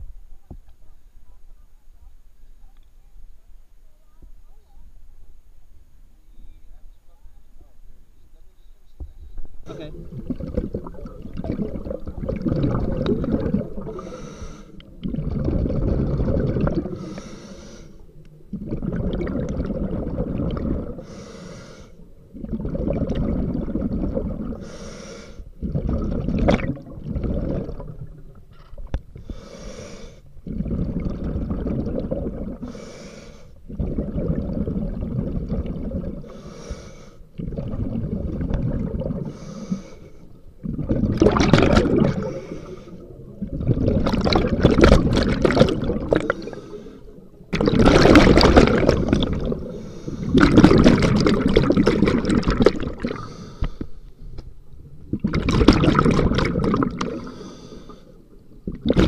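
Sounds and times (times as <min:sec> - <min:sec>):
bubbling exhaust: 0:09.7 - 0:53.8, 0:55.1 - 0:59.0
diver breathing through regulator: 0:13.6 - 0:18.1, 0:20.4 - 0:22.1, 0:24.4 - 0:26.0, 0:29.1 - 0:31.5, 0:32.4 - 0:35.1, 0:36.1 - 0:38.4, 0:39.0 - 0:40.4, 0:41.8 - 0:43.2, 0:45.5 - 0:47.3, 0:48.7 - 0:50.8, 0:52.9 - 0:54.1, 0:57.0 - 0:58.2.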